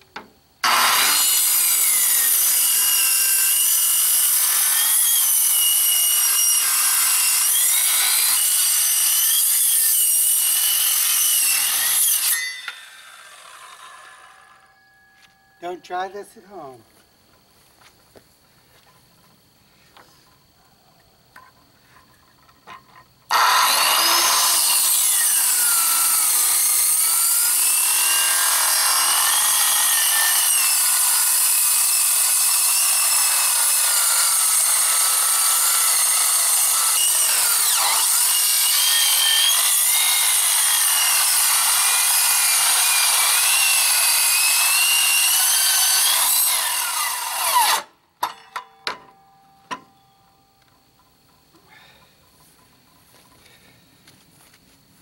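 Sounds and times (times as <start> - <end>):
circular saw cutting metal: 0.6 - 14.9, 23.3 - 48.5.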